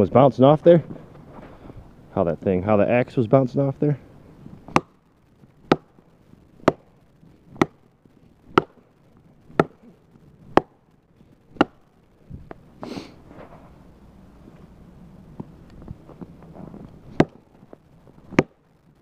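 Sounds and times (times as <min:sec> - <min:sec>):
axe striking hard wood: 0:04.7 - 0:05.0, 0:05.7 - 0:05.9, 0:06.6 - 0:06.9, 0:07.6 - 0:07.8, 0:08.5 - 0:08.8, 0:09.6 - 0:09.8, 0:11.6 - 0:11.8, 0:17.1 - 0:17.4, 0:18.3 - 0:18.6.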